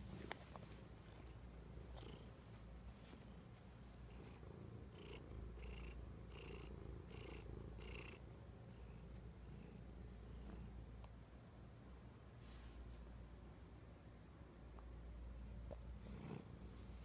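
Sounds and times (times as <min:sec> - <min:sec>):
cat purring: 0:00.0 - 0:10.8, 0:15.5 - 0:17.0.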